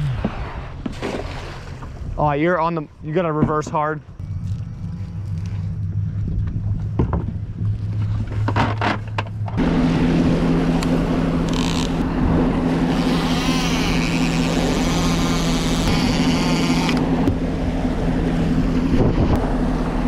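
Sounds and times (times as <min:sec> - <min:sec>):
water rushing past hull: 0:00.0 - 0:02.3
outboard engine idling: 0:02.7 - 0:20.0
outboard engine running underway: 0:03.2 - 0:20.0.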